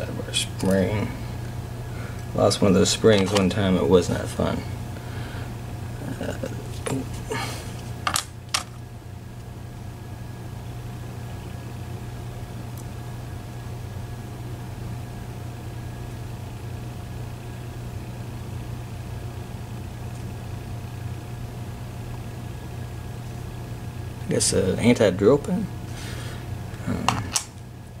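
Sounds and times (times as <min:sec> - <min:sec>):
low room hum: 0:00.0 - 0:28.0.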